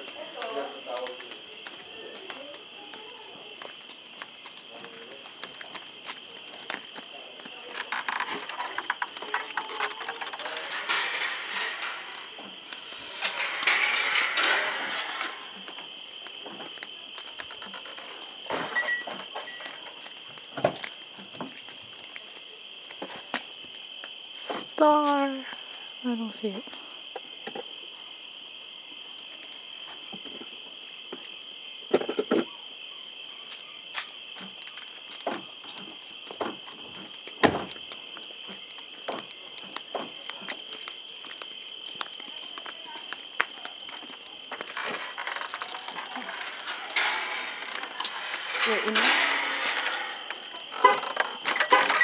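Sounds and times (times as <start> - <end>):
footsteps rustling and clicking: 0.0 - 10.8, 33.5 - 51.4
night insects chirring: 0.0 - 52.0.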